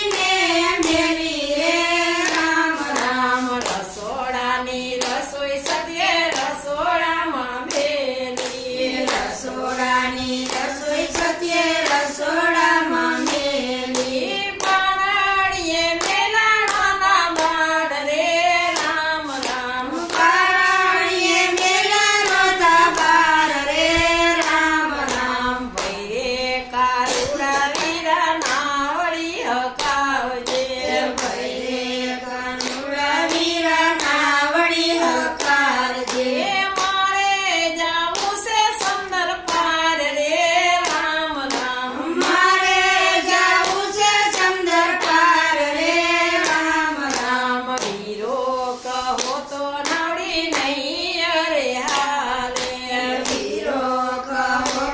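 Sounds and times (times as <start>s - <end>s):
hand claps: 0.0s - 54.9s
women singing devotional song: 0.0s - 54.9s.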